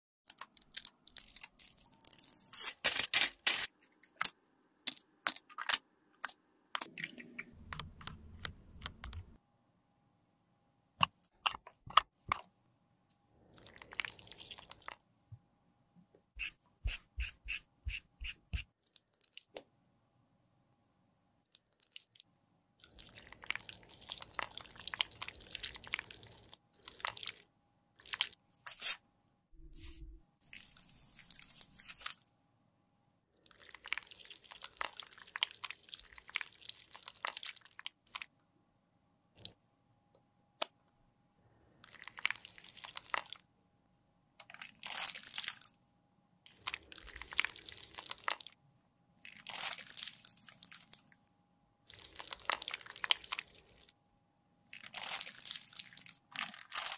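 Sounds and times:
makeup crackling and squishing: 22.8 - 27.4, 33.5 - 38.3, 41.8 - 43.4, 46.5 - 48.6, 49.2 - 51.1, 51.9 - 54.0, 54.7 - 56.9.

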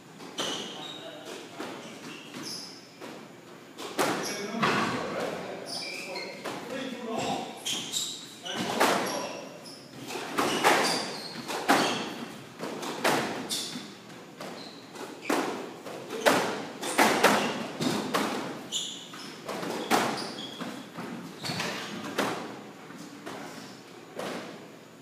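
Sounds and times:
shoes squeaking on hardwood floor: 0.2 - 22.2
squash ball hits: 10.0 - 13.7, 14.4 - 18.6.

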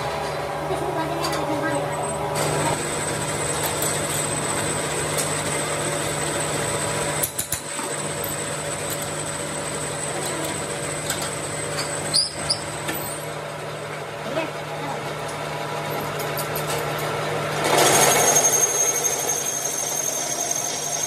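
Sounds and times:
metal lathe humming and whining: 17.7 - 21.0.

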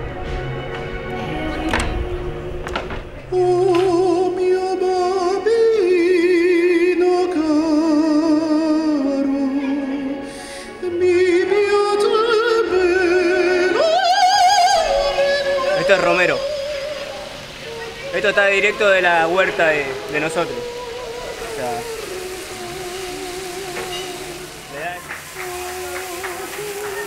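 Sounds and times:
person singing operatically: 1.1 - 27.0.

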